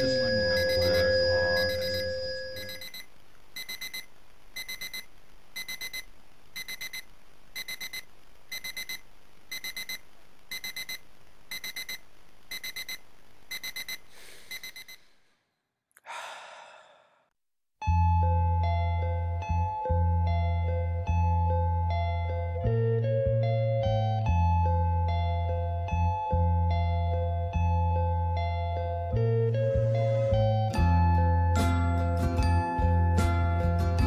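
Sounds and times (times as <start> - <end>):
music: 0.0 - 2.7, 17.8 - 34.0
alarm clock beeping: 0.0 - 3.0, 3.6 - 6.0, 6.6 - 7.0, 7.6 - 15.0
short breathy sound: 14.1 - 17.3.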